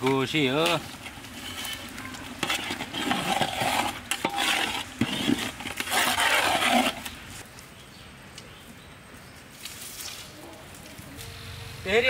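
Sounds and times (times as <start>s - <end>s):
metal spatula scraping a pot: 0.0s - 7.2s.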